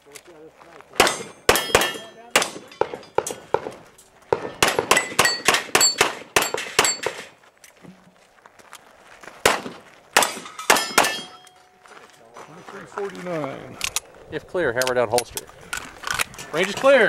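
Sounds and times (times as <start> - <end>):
handgun shots: 1.0 - 7.3, 9.5 - 11.4
steel targets ringing: 4.9 - 7.3, 10.4 - 11.7.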